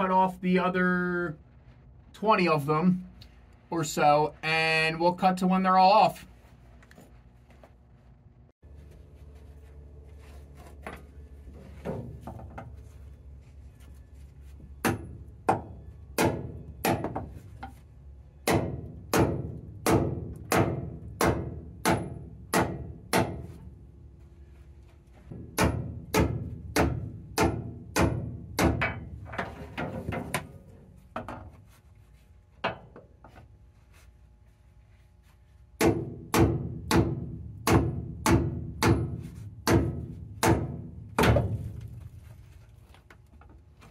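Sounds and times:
hammer striking metal: 14.8s - 17.3s, 18.4s - 23.6s, 25.3s - 29.1s, 35.8s - 41.6s.

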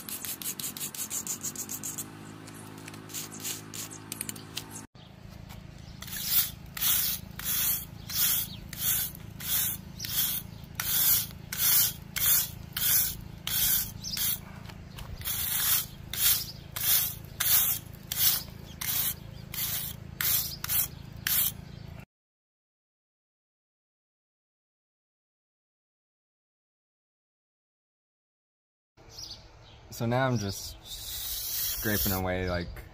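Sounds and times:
brush scrubbing rough wall: 0.0s - 2.2s, 2.8s - 4.4s, 6.0s - 21.7s, 31.0s - 32.3s.

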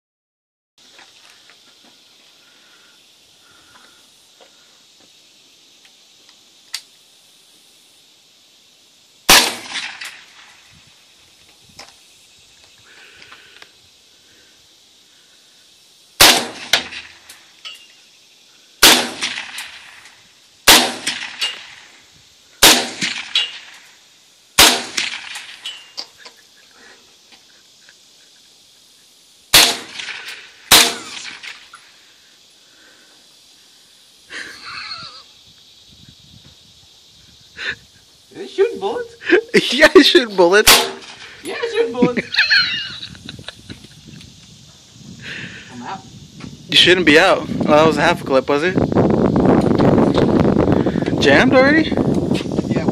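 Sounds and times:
gunshot echo: 9.3s - 10.5s, 16.2s - 17.2s, 18.8s - 20.0s, 20.7s - 21.8s, 22.6s - 23.8s, 24.6s - 25.6s, 29.5s - 31.6s, 40.6s - 41.2s
suppressed rifle shots: 9.3s - 10.5s, 16.2s - 17.2s, 18.8s - 20.0s, 20.6s - 21.8s, 22.6s - 23.8s, 24.6s - 25.8s, 29.5s - 31.7s, 40.6s - 41.2s.

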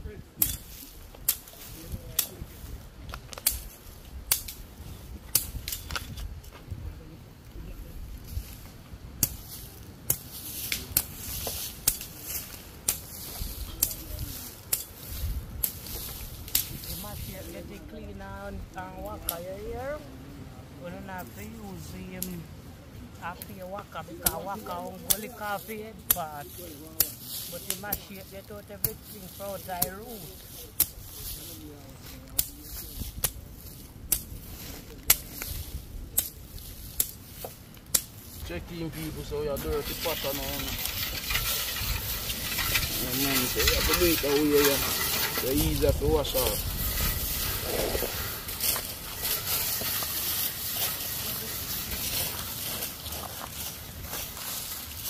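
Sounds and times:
steady hiss: 0.0s - 55.0s
handling noise: 39.0s - 55.0s.

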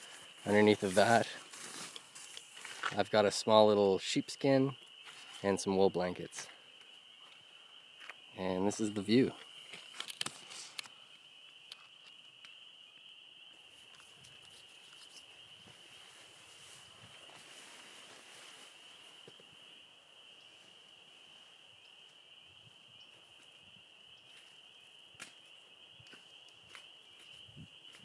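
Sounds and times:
soft rustles and ticks: 0.0s - 3.0s, 13.7s - 19.5s
spring peepers calling: 0.0s - 28.0s.

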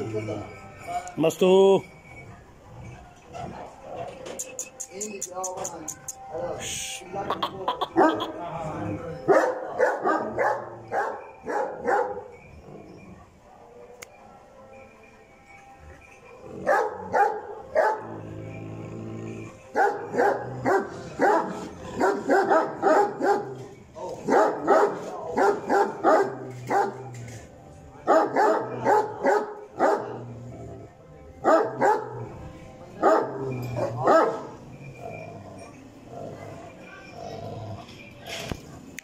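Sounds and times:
dog barking: 7.9s - 8.3s, 9.3s - 12.3s, 16.6s - 18.1s, 19.8s - 27.1s, 28.1s - 30.2s, 31.4s - 32.3s, 33.0s - 35.3s.

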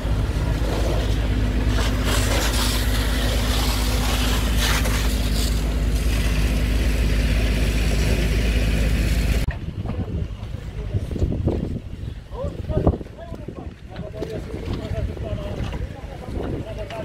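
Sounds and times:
engine humming: 0.0s - 17.0s
water jet hissing on fire: 0.1s - 9.5s.

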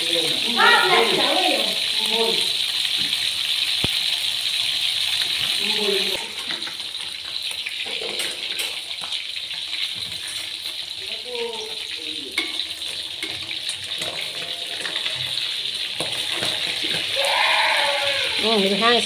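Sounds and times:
fish sizzling in hot oil: 0.0s - 19.0s.

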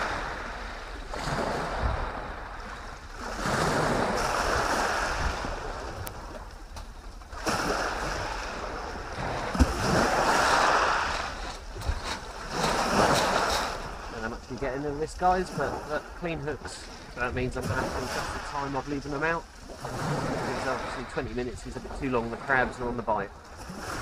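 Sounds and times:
wind rumbling on microphone: 0.0s - 19.1s
waves breaking on shingle: 6.4s - 14.7s.

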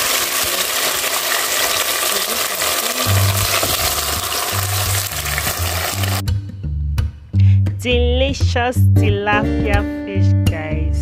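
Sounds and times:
oil sizzling and frying: 0.0s - 6.2s
puree pouring into a pot: 0.0s - 6.2s
background music with bass: 3.2s - 11.0s.

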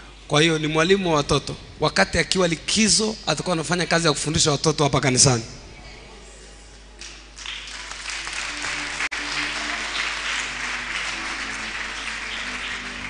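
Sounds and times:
congregation applauding: 7.0s - 13.0s
instrumental music with held notes: 8.3s - 13.0s.

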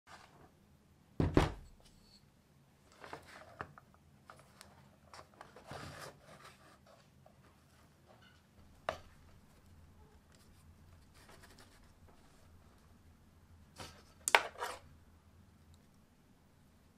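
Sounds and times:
heavy thump on workbench: 1.2s - 1.6s
rubbing and rustling: 2.9s - 8.2s, 9.1s - 13.0s.

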